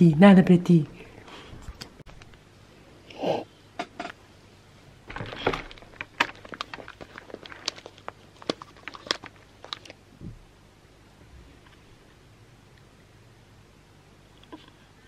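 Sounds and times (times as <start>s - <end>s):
clicks taps and cable rattles: 5.1s - 9.9s
headphones rustling: 5.1s - 9.9s.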